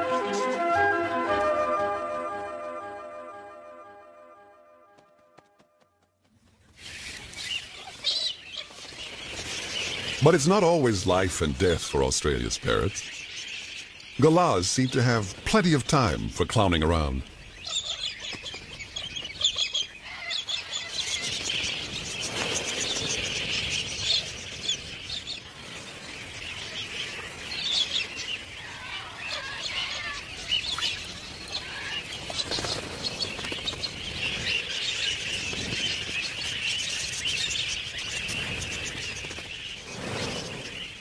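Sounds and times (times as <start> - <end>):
flock of birds screeching: 6.8 - 10.8, 17.3 - 41.0.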